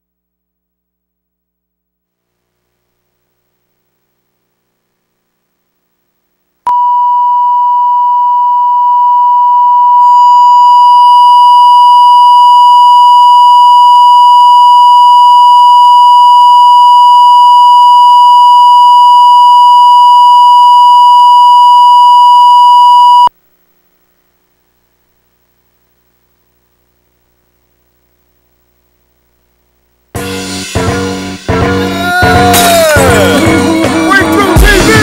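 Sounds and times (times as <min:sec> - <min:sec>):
steady test tone beep: 0:06.7 - 0:23.3.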